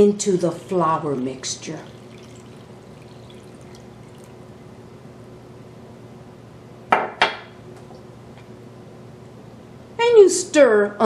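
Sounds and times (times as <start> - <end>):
water trickling into flour: 0.2 - 4.7.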